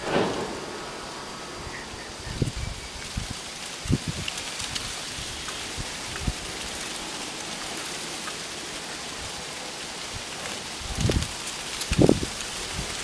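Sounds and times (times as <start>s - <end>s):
wind through trees: 0.0s - 13.0s.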